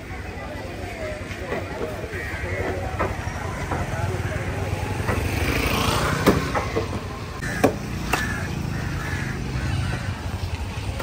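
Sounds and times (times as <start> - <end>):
vehicle engine idling: 2.2 - 11.0
sharp knocks: 6.2 - 8.2.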